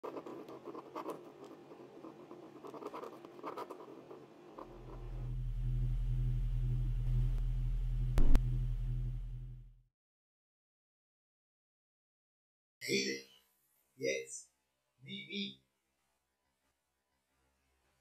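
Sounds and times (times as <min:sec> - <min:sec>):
pen scratching on paper: 0:00.0 - 0:05.3
low electric hum: 0:03.5 - 0:09.8.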